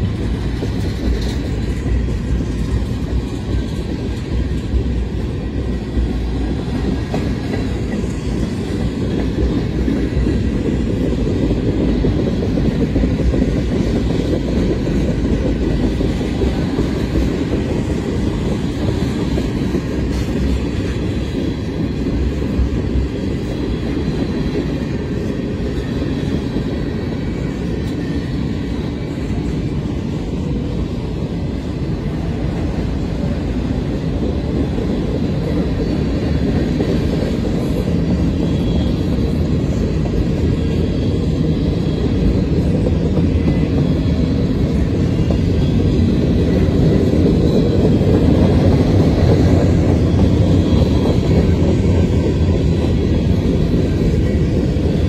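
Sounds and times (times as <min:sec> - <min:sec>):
freight train wheels rumbling on rails: 0:00.0 - 0:55.0.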